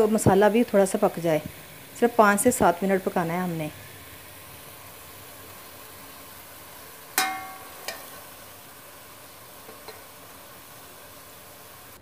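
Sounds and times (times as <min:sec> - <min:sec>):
chicken sizzling in a metal pot: 0:00.0 - 0:12.0
metal spoon clanging on pot: 0:07.2 - 0:08.2.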